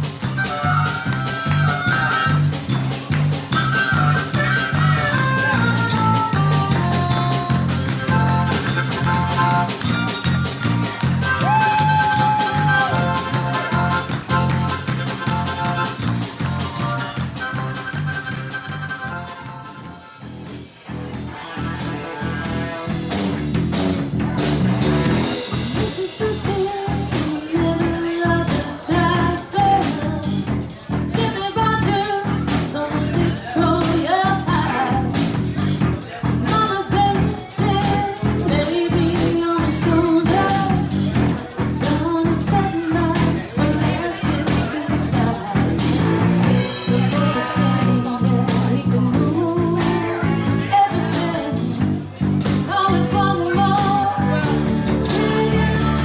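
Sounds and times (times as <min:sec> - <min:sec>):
drum kit beat: 0:00.0 - 0:56.0
electric bass: 0:00.0 - 0:56.0
electric guitar: 0:00.0 - 0:56.0
woman singing: 0:25.6 - 0:35.2, 0:36.4 - 0:51.9, 0:52.5 - 0:56.0.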